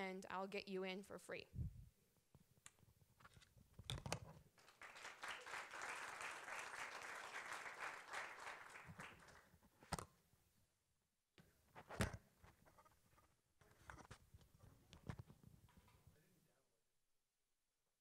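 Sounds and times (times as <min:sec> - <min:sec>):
audience applauding: 0:04.6 - 0:09.5.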